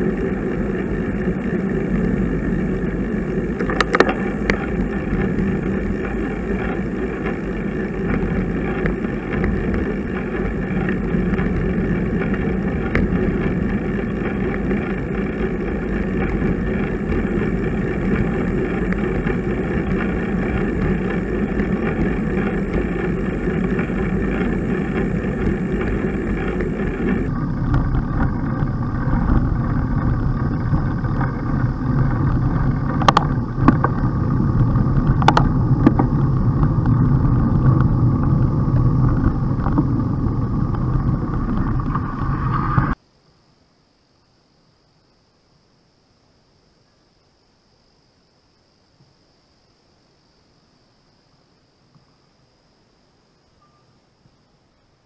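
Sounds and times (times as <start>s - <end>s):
tyre hum on road: 0.0s - 43.0s
wind on microphone: 0.0s - 43.0s.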